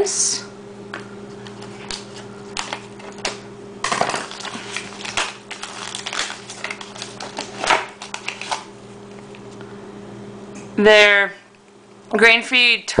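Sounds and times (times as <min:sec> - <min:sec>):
shrink wrap crinkling: 0:01.4 - 0:09.6.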